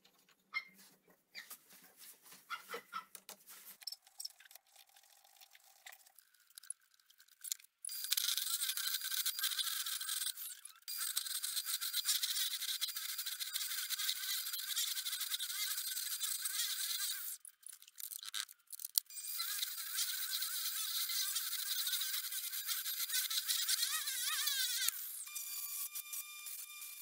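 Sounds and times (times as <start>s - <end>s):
lathe tool scraping wood: 7.9s - 17.4s, 19.2s - 27.0s.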